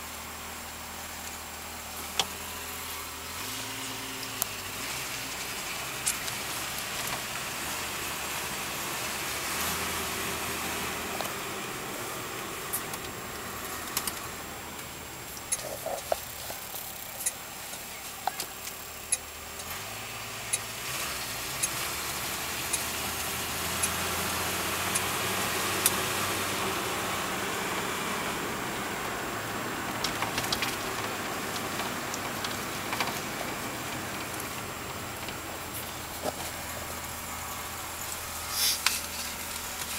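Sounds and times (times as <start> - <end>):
car engine running: 0.0 - 39.9
road and wind noise: 0.0 - 39.9
sharp clicks: 15.3 - 17.4.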